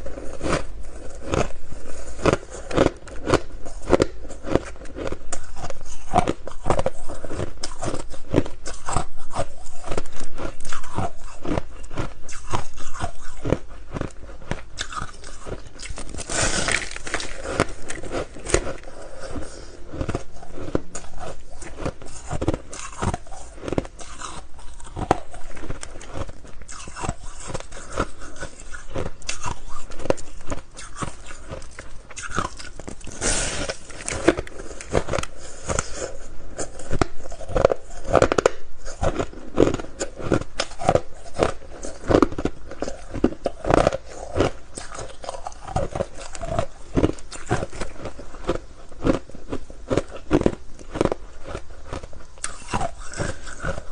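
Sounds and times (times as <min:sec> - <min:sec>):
crunching ice block: 0:10.7 - 0:18.9.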